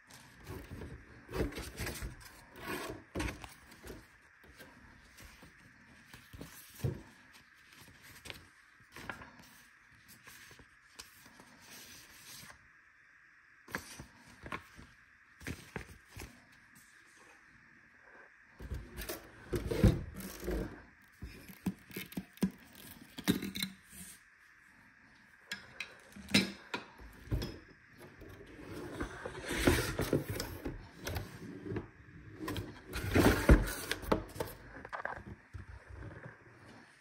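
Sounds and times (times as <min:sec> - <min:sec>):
cardboard and packaging rustling: 0:00.0 - 0:12.6, 0:13.7 - 0:17.0, 0:28.1 - 0:37.0.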